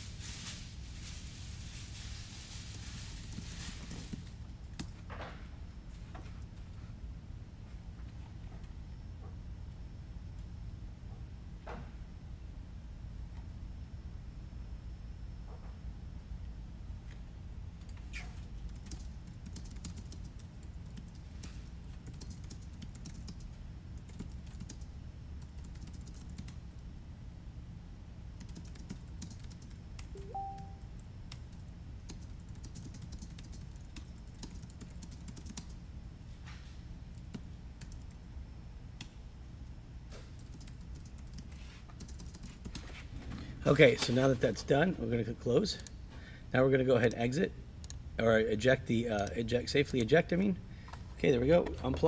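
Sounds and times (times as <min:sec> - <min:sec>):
low steady hum: 0:00.0 - 0:52.0
two-note beep: 0:30.2 - 0:30.9.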